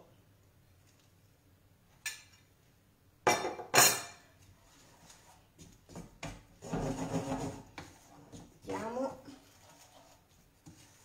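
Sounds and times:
spoon stirring and scraping pan: 3.9 - 11.0.

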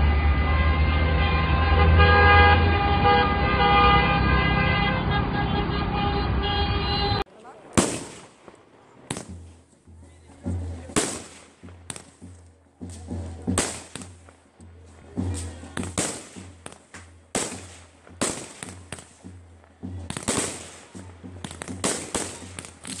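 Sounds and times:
fireworks bangs with crackling: 7.6 - 23.0.

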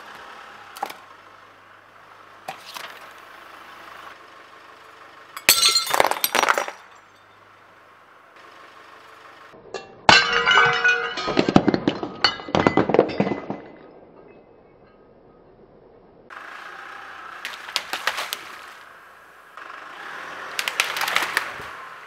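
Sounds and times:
ceramic figurine shattering: 5.4 - 7.1, 10.0 - 13.9.

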